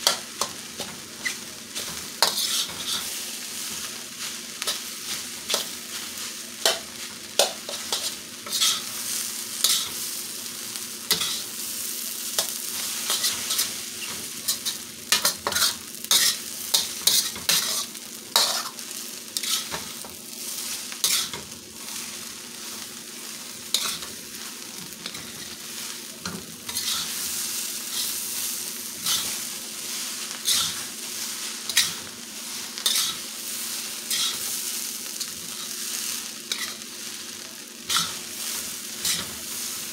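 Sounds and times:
metal spatula scraping a wok: 0:00.0 - 0:08.9, 0:09.6 - 0:10.1, 0:11.1 - 0:11.5, 0:12.4 - 0:18.8, 0:19.4 - 0:20.0, 0:20.6 - 0:22.1, 0:23.7 - 0:24.1, 0:26.7 - 0:28.3, 0:29.0 - 0:33.2, 0:34.1 - 0:34.6, 0:36.5 - 0:36.8, 0:37.9 - 0:39.9
stir-fry sizzling in a wok: 0:00.0 - 0:39.9.

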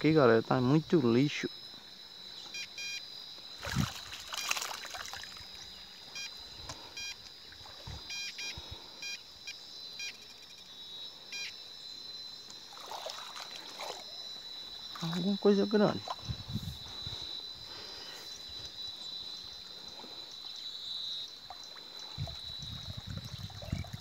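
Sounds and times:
metal detector beeping: 0:02.6 - 0:03.0, 0:06.2 - 0:07.2, 0:08.1 - 0:10.5, 0:11.4 - 0:11.6
water sloshing and splashing: 0:03.5 - 0:05.8, 0:12.5 - 0:16.5, 0:21.3 - 0:24.0.

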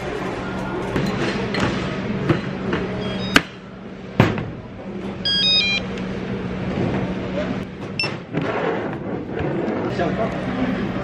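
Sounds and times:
store hum: 0:00.0 - 0:11.0
stepped electronic alert tones: 0:05.2 - 0:05.8
barcode scanner beep: 0:05.2 - 0:05.9.

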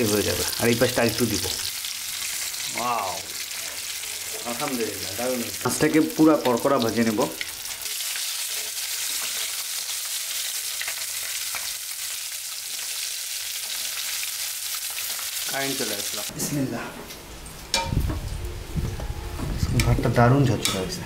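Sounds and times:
fish sizzling in oil: 0:00.0 - 0:16.3.

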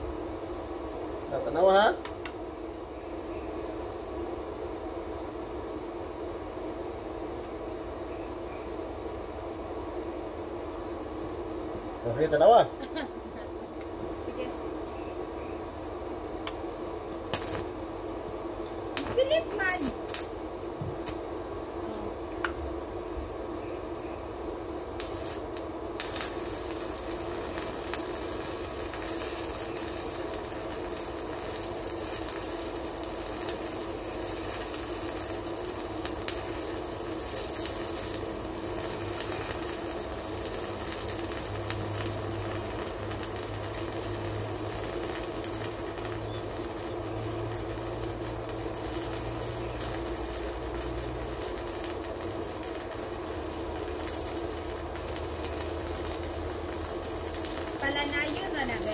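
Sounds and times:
arc welding crackle and hiss: 0:00.0 - 0:58.9
sharp welding pops: 0:01.9 - 0:02.5, 0:16.4 - 0:16.6, 0:17.3 - 0:21.3, 0:24.9 - 0:58.9.

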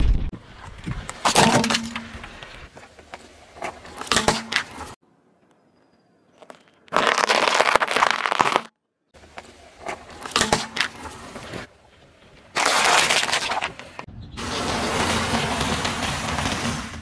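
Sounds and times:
chocolate balls crunching: 0:06.9 - 0:08.7
plastic punnet crackling: 0:06.9 - 0:08.7.

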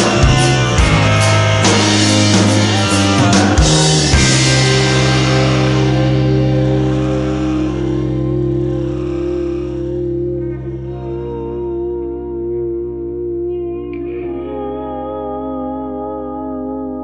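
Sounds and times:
rock music with guitar and drums: 0:00.0 - 0:13.4.

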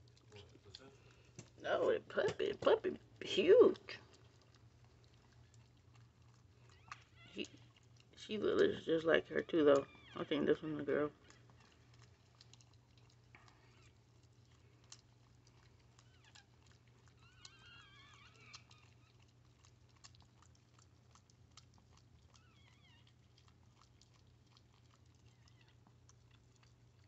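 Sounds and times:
dog licking wet mouth clicks: 0:00.0 - 0:01.6, 0:03.0 - 0:08.2, 0:11.2 - 0:27.0
newborn puppy squeaking: 0:06.6 - 0:07.6, 0:09.4 - 0:10.3, 0:13.6 - 0:14.0, 0:15.9 - 0:19.3, 0:22.2 - 0:23.3, 0:25.2 - 0:25.8.

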